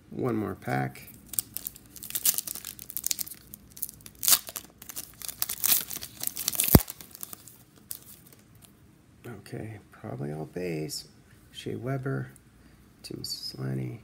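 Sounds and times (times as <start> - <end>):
wrapper tearing and crinkling: 1.1 - 8.4.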